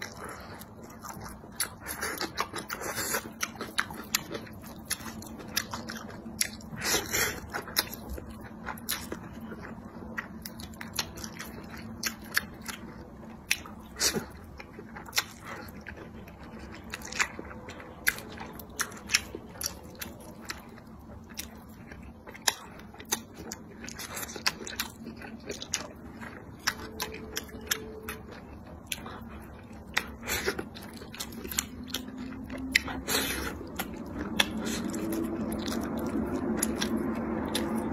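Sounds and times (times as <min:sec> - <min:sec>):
chewing: 0:00.0 - 0:37.9
slurping noodles: 0:32.8 - 0:33.7.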